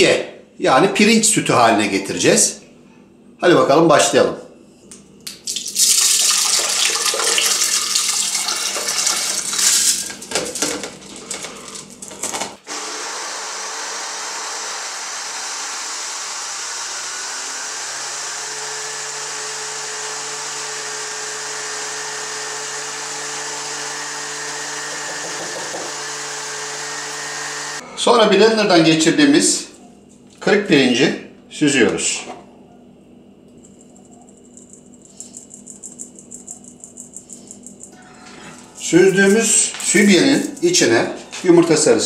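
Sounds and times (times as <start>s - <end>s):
rice and water pouring into blender: 5.5s - 10.3s
blender running: 5.8s - 10.4s, 11.3s - 27.8s.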